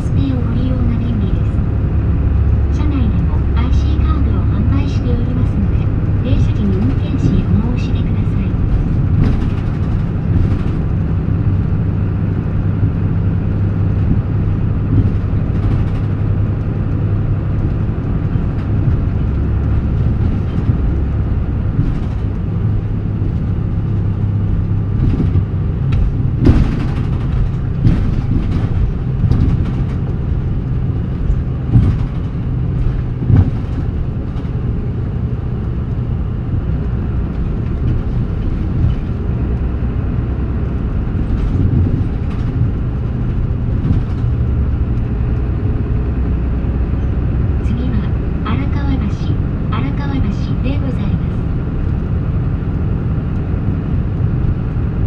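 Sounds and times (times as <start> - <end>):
bus diesel engine drone: 0.0 - 55.0
knocks and rattles: 5.6 - 11.6, 12.8 - 35.2, 37.2 - 45.5.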